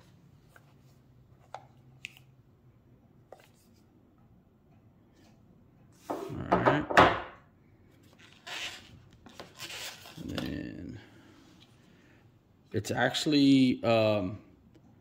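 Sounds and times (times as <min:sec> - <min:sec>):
packaging rustling and scraping: 0:08.0 - 0:10.5.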